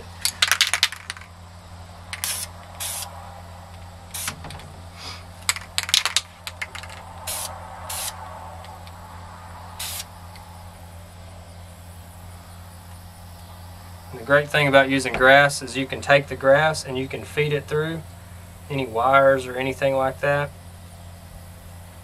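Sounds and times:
spray paint can spraying: 0:00.2 - 0:01.3, 0:02.1 - 0:03.1, 0:04.1 - 0:04.5, 0:05.4 - 0:08.2, 0:09.8 - 0:10.1.

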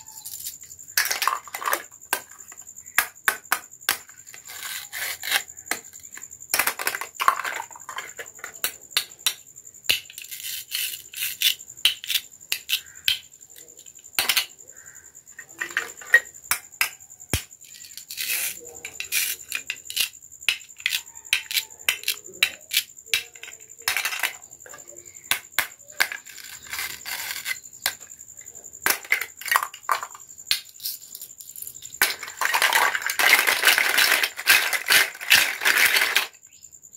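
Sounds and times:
plastic pieces rattling in basket: 0:01.0 - 0:01.9, 0:32.0 - 0:36.4
plastic toy pieces clicking: 0:28.8 - 0:36.4.

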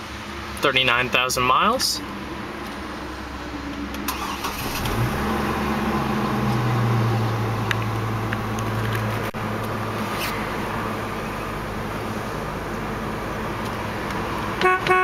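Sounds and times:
car engine idling: 0:00.0 - 0:14.8
engine starter cranking: 0:04.1 - 0:05.2.

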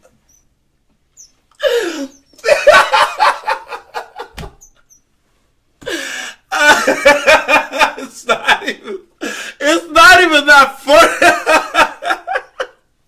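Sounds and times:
man laughing hard: 0:01.6 - 0:04.4, 0:05.8 - 0:09.4, 0:10.9 - 0:12.8.

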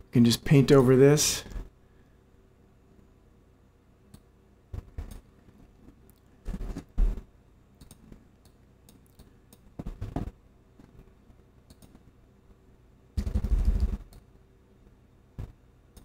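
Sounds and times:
computer mouse clicks: 0:07.8 - 0:09.7, 0:11.7 - 0:12.0
keyboard typing: 0:13.2 - 0:14.2.

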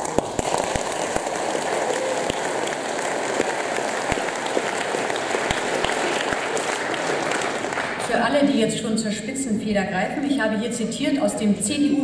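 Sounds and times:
large audience applauding: 0:00.0 - 0:08.1.

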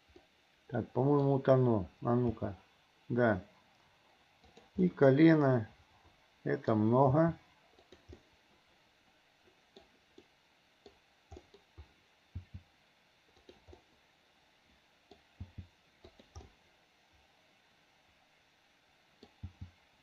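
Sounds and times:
mouse and keyboard clicks: 0:07.8 - 0:08.3, 0:09.7 - 0:12.6, 0:13.3 - 0:13.8, 0:15.1 - 0:16.6.

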